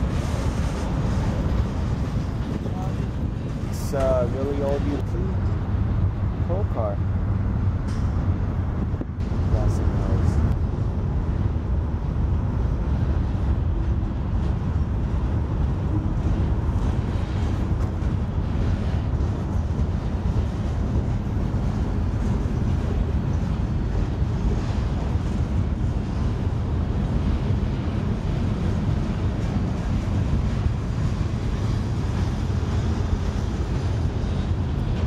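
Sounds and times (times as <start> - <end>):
distant freight train rumble: 0.0 - 35.0
wind buffeting microphone: 0.0 - 35.0.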